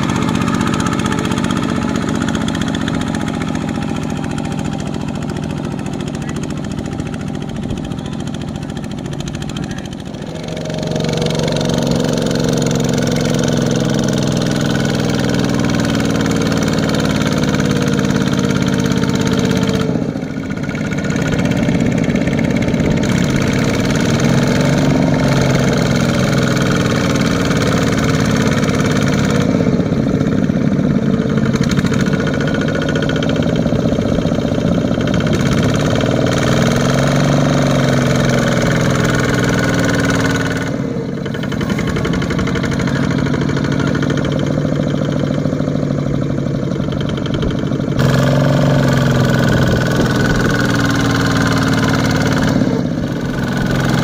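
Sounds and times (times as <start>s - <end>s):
diesel tractor engine under load: 0.0s - 54.0s.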